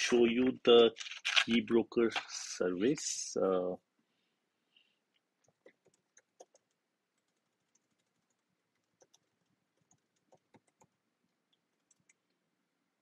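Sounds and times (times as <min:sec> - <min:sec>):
keyboard typing clicks: 0:05.4 - 0:11.0.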